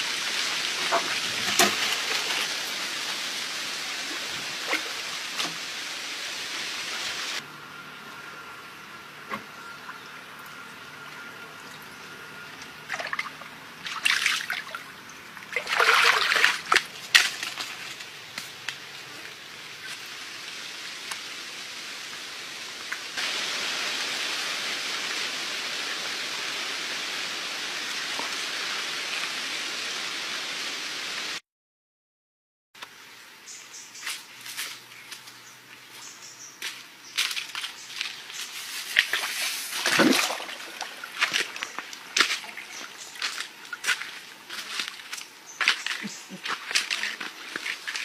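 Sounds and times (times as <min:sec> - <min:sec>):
rushing hiss: 0:00.0 - 0:07.4, 0:20.2 - 0:31.4
muddy water splashing: 0:00.2 - 0:05.7, 0:12.5 - 0:18.3, 0:37.3 - 0:48.0.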